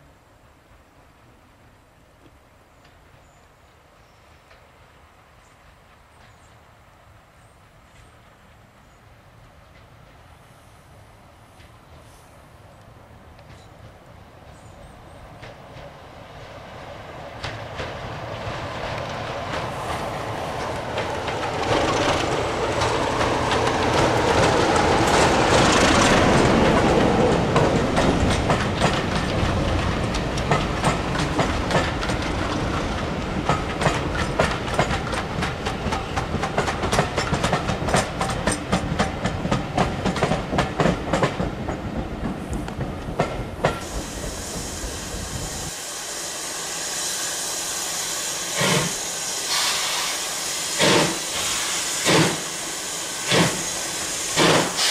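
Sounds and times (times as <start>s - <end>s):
steady hiss: 0.0s - 39.4s, 42.3s - 54.9s
diesel locomotive passing: 3.0s - 54.9s
train wheels clicking over rail joints: 17.3s - 45.8s, 46.9s - 54.9s.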